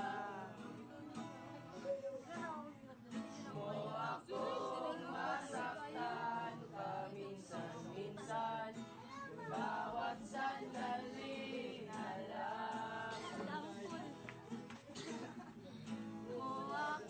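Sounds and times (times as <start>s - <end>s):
group of voices singing: 0.0s - 1.3s, 3.3s - 14.0s, 16.2s - 17.0s
strummed acoustic guitar: 0.0s - 17.0s.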